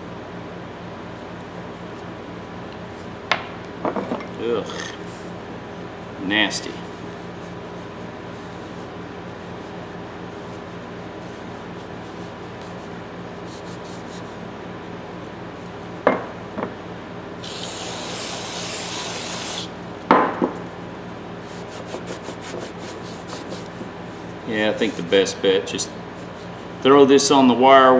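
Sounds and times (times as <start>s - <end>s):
aerosol spray hissing: 17.4s - 19.7s
rag wiping metal handle: 21.5s - 25.4s.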